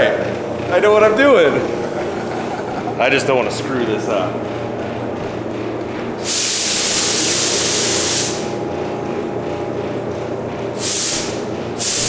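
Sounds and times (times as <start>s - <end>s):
steady low hum: 0.0s - 12.0s
paint spray gun hissing: 6.2s - 8.5s, 10.8s - 12.0s.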